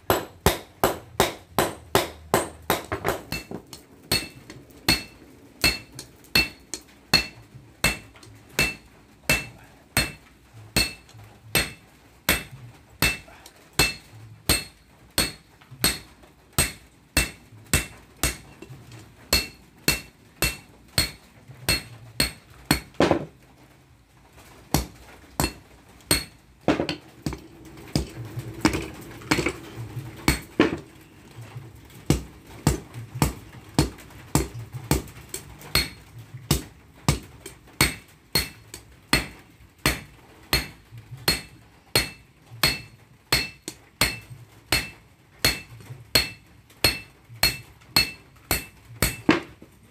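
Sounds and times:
hammer clanging on anvil: 0.1s - 10.2s, 10.8s - 18.7s, 19.3s - 23.2s, 24.8s - 29.6s, 32.1s - 49.5s
steady low hum: 24.8s - 49.9s.

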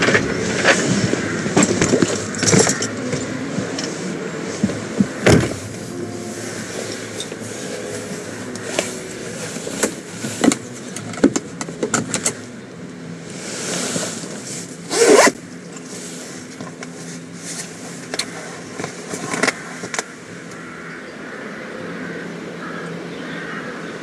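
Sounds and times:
zip pulled open: 13.4s - 15.4s.

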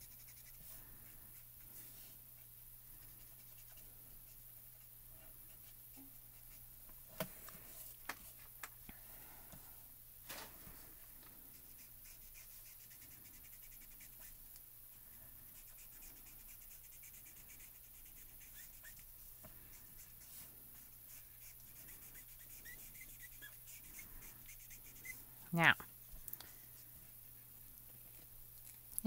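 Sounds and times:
marker scratching on card: 0.0s - 2.0s, 3.0s - 4.8s, 11.5s - 14.4s, 15.4s - 25.7s.

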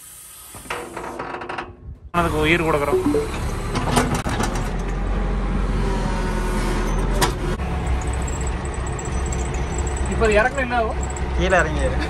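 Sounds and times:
diesel engine rumbling: 7.5s - 12.0s.

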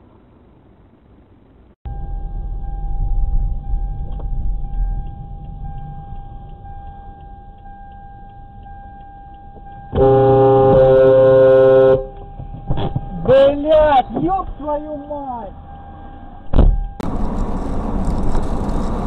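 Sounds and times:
faint steady whine: 0.0s - 18.9s
road and engine rumble: 0.0s - 19.0s
light regular ticking: 2.0s - 19.0s
car horn: 9.8s - 14.1s.

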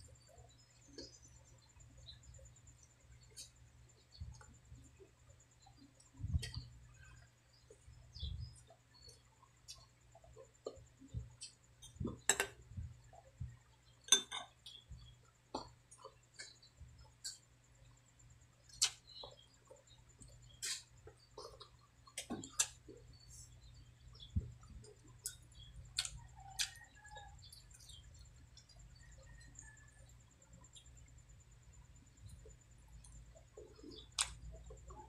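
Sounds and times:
faint low hum: 0.0s - 35.0s
person chewing: 20.5s - 22.8s, 25.1s - 26.8s.

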